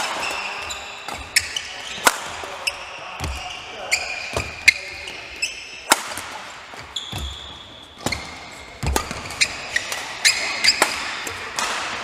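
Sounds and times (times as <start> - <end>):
rackets striking shuttlecock: 0.0 - 3.4, 5.8 - 12.0
shoes squeaking on court: 0.0 - 11.4.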